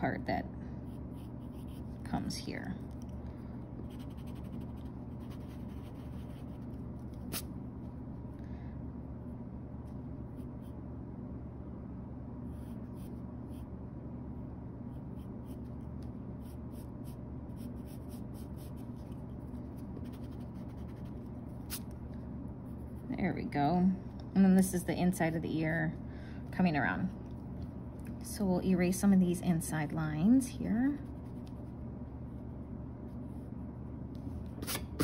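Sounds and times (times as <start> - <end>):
low hum: 0.0 - 35.0
pencil scratching on paper: 0.9 - 2.0, 3.8 - 7.4, 16.4 - 19.2, 20.0 - 21.8.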